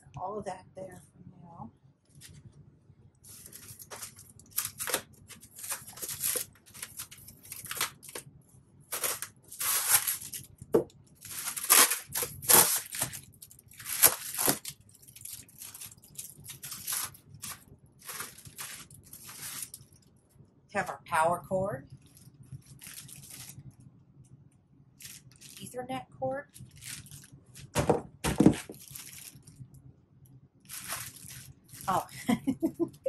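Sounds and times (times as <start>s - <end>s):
blade slitting packing tape: 4.5s - 8.2s, 8.9s - 10.5s, 11.3s - 19.8s
tape pulled from styrofoam: 8.9s - 10.5s, 11.2s - 14.8s.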